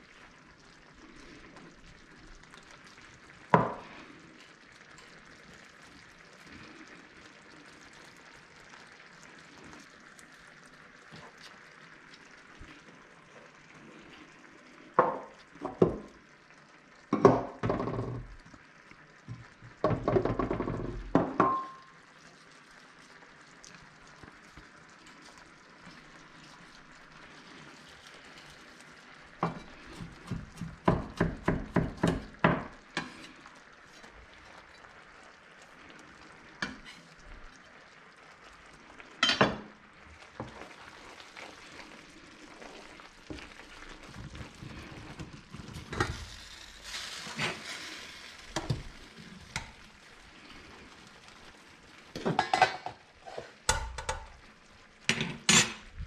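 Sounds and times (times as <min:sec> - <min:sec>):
sauce simmering and frying: 0:00.0 - 0:56.0
knocks of stirring: 0:03.5 - 0:04.1, 0:15.0 - 0:16.1, 0:17.1 - 0:18.4, 0:19.3 - 0:21.8, 0:27.8 - 0:34.1, 0:39.2 - 0:50.0, 0:52.1 - 0:54.4
metal server clattering on pot: 0:52.2 - 0:54.3, 0:55.1 - 0:55.8.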